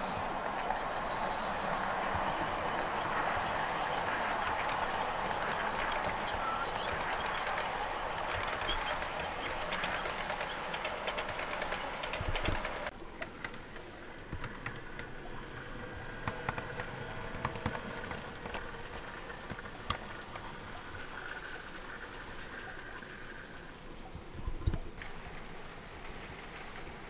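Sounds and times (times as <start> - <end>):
model train wheels rattling: 0.0 - 15.3
model railcar humming: 0.0 - 23.7.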